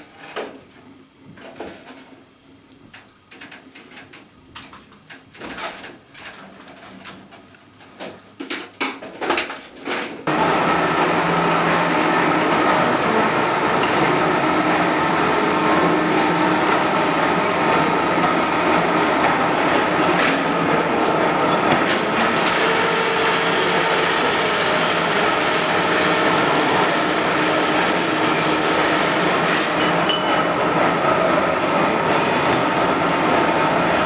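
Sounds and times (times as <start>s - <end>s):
machine whine: 10.3s - 34.0s
milling machines and lathes running: 10.3s - 34.0s.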